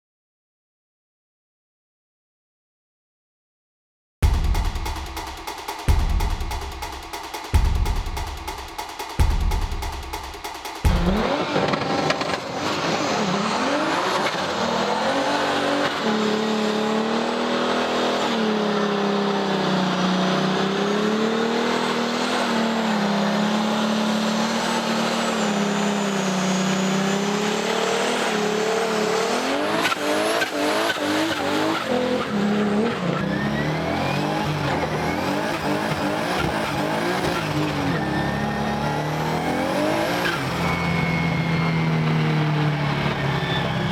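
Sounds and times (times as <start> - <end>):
car engine revving: 7.5 - 43.9
tyres squealing in a burnout: 28.1 - 42.1.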